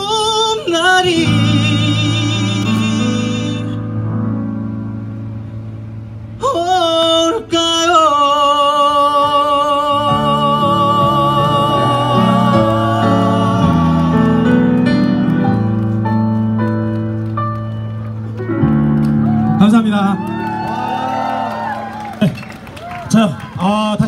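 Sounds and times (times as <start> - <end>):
man singing a ballad: 0.0 - 4.1, 6.4 - 15.2
piano-led backing track: 0.0 - 23.2.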